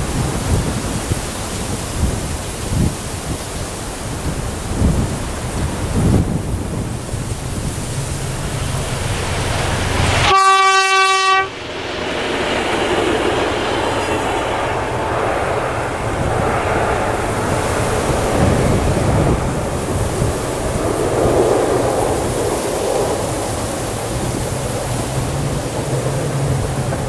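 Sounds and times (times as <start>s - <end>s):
train horn blast: 10.0s - 11.7s
train wheels clattering over rails: 11.5s - 27.0s.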